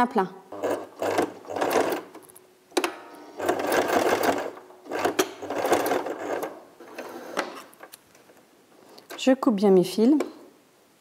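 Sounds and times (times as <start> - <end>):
sewing machine stitching: 0.5 - 2.1, 3.4 - 7.4.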